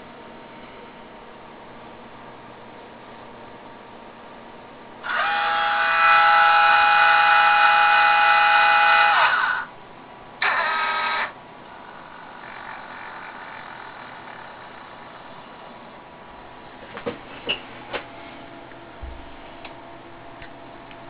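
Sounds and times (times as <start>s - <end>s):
drive motors whining: 5.0s - 9.7s, 10.4s - 15.6s.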